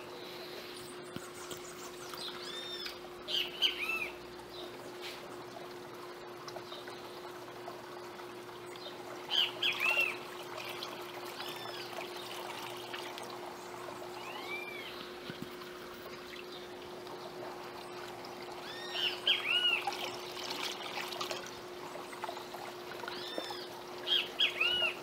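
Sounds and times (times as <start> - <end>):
faint steady hum: 0.0 - 25.0
birds chirping: 0.1 - 5.5, 8.6 - 15.4, 16.0 - 20.3, 21.9 - 25.0
water pouring into tank: 3.9 - 25.0.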